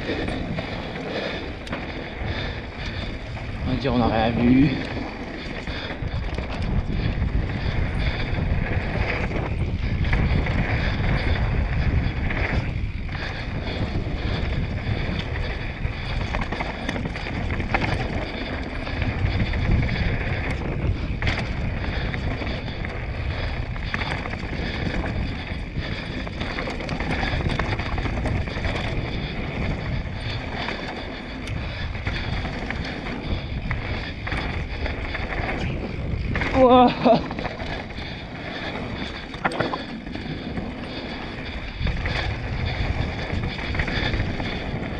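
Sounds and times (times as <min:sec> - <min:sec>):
bike clicks and knocks: 0:00.0 - 0:44.9
tyres on dirt trail: 0:00.0 - 0:44.9
wind rumble on microphone: 0:00.0 - 0:44.9.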